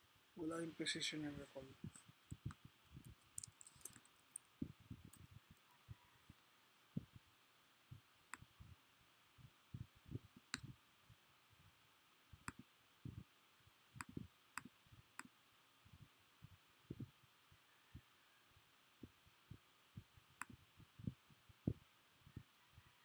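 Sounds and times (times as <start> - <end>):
soft low thumps: 4.6 - 5.6, 12.3 - 13.3, 14.0 - 14.7, 15.9 - 17.1, 19.0 - 22.5.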